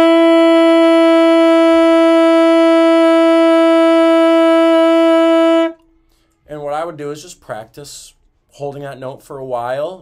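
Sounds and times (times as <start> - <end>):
saxophone long note: 0.0 - 5.8.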